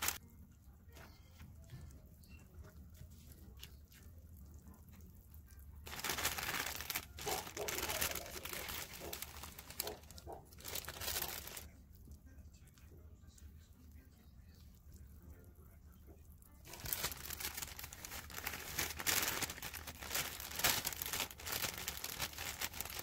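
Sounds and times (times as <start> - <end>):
plastic pouch crinkling: 0.0 - 0.2, 5.8 - 11.7, 16.7 - 23.0
spatula stirring batter: 0.0 - 5.8, 11.6 - 16.7.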